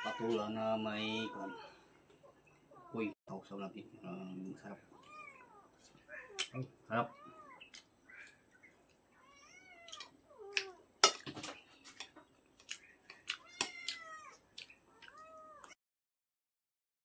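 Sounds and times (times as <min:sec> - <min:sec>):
cat meowing: 0:00.0 - 0:01.8, 0:05.0 - 0:07.6, 0:09.2 - 0:10.8, 0:13.4 - 0:15.8.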